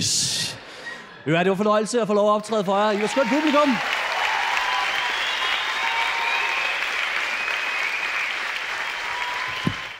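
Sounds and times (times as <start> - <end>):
audience applauding: 2.7 - 9.9.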